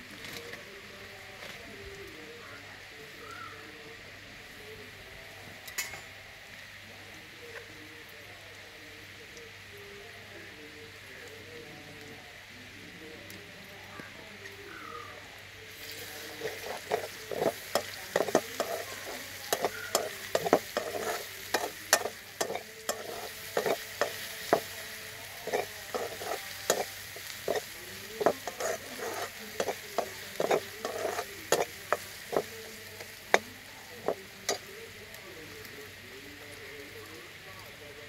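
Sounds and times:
onions frying in oil: 0.0 - 38.0
metal spatula scraping a steel pan: 16.4 - 24.7, 25.4 - 32.5.

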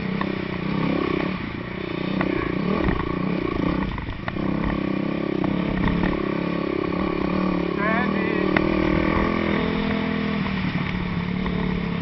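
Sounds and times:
dirt bike engine: 0.0 - 12.0
light clicks and knocks from bike: 3.8 - 4.8, 5.4 - 6.3.

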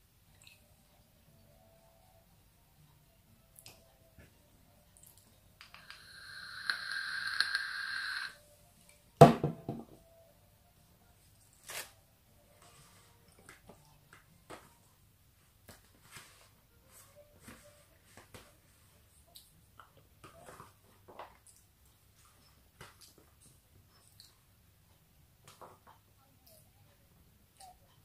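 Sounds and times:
vape hissing and sizzling: 5.6 - 8.4
tortilla wrap rustling: 11.6 - 12.0.

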